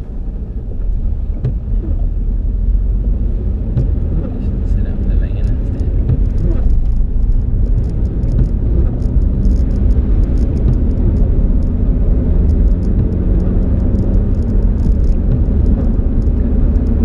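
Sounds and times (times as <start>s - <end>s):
engine and tyre rumble: 0.0s - 17.0s
light ticking: 3.7s - 17.0s.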